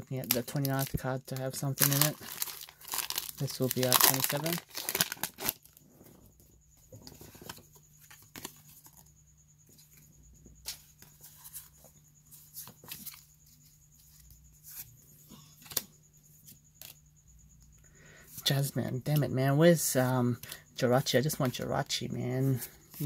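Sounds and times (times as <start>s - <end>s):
foil wrapper crinkling: 0.2s - 5.8s.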